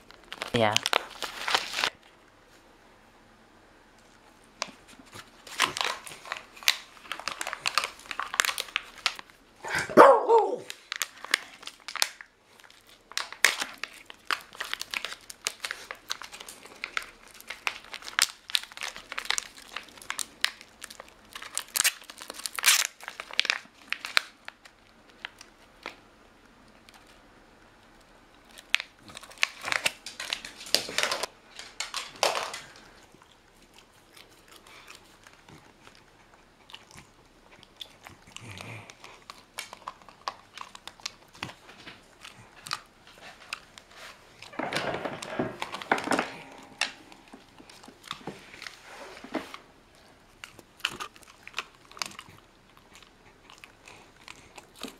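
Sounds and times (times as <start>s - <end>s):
plastic wrapper crinkling: 0.0s - 2.2s, 4.0s - 9.4s, 10.3s - 26.0s, 28.0s - 54.9s.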